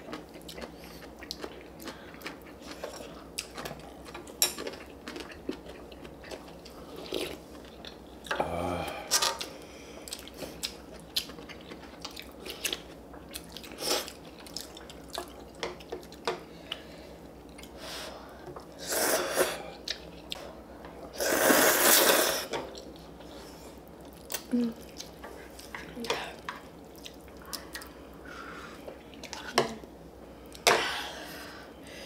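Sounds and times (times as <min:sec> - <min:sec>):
chewing with small clicks: 0:00.0 - 0:08.0, 0:09.4 - 0:17.8, 0:24.0 - 0:28.0
slurping noodles: 0:21.1 - 0:22.5.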